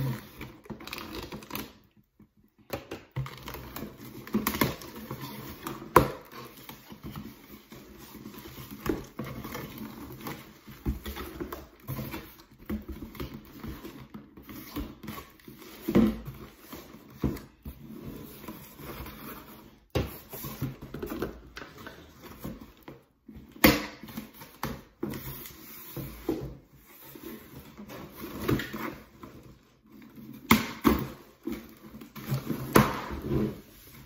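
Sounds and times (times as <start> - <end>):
cardboard rustling and scraping: 3.2 - 34.0.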